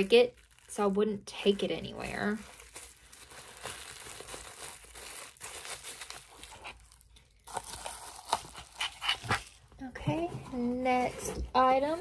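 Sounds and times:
packaging crinkling and rustling: 0.0 - 9.8.

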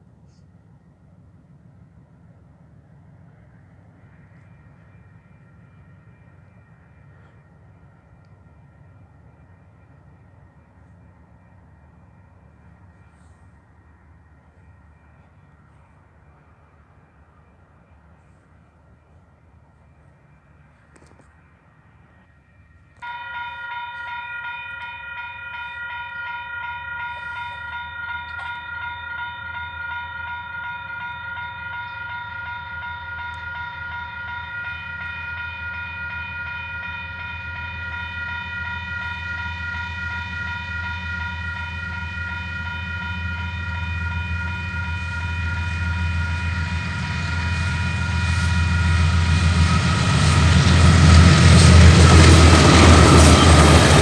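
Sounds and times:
train rumble: 0.0 - 54.0
level crossing warning bells: 21.6 - 54.0.

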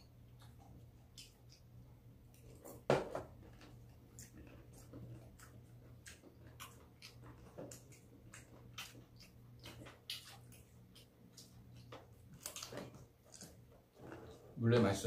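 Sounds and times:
chewing and mouth smacks: 0.0 - 2.8, 3.4 - 13.7
low steady hum: 0.0 - 15.0.

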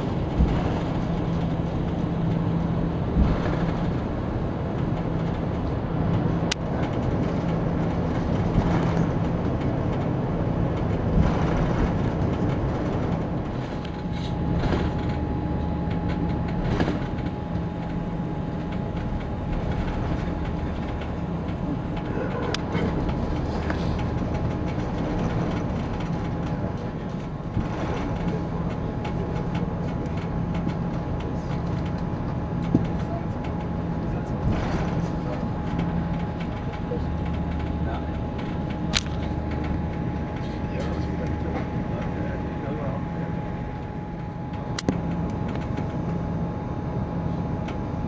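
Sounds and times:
aircraft engines idling: 0.0 - 48.0
steady cabin hum: 0.0 - 48.0.

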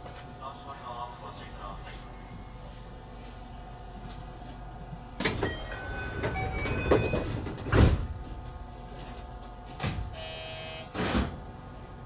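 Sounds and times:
sliding doors thumping shut: 5.2 - 8.3
short buzzer tone: 10.1 - 11.1.

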